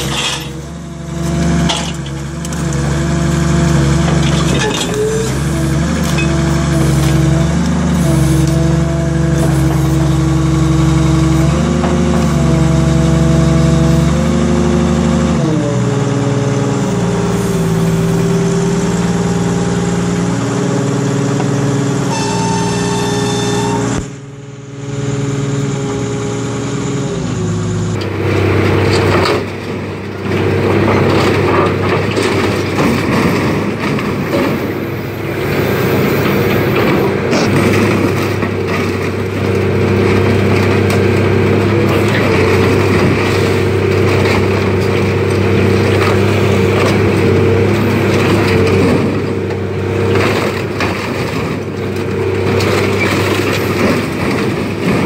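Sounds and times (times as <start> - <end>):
excavator diesel engine under load: 0.0 - 55.0
heavy machinery rumble and clatter: 0.0 - 55.0.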